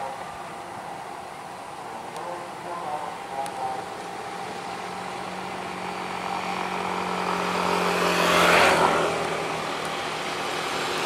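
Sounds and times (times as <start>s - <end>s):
vehicle engine passing by: 2.3s - 11.0s.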